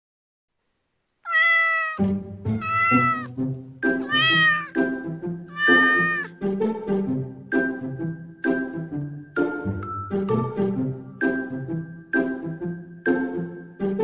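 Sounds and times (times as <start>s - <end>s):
kitten meowing: 1.3s - 2.0s, 2.6s - 3.3s, 4.0s - 4.8s, 5.5s - 6.3s
light background music: 2.0s - 14.0s.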